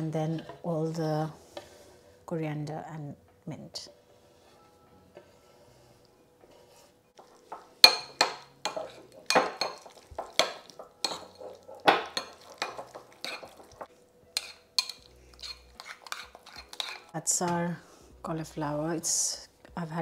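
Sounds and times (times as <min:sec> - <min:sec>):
spoon clinking and scraping bowl: 0:06.5 - 0:17.1.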